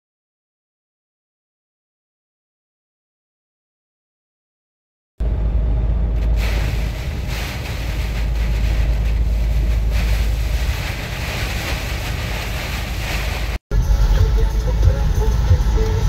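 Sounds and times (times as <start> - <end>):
strong low rumble: 5.2 - 16.0
rain and hail beating down: 6.2 - 13.6.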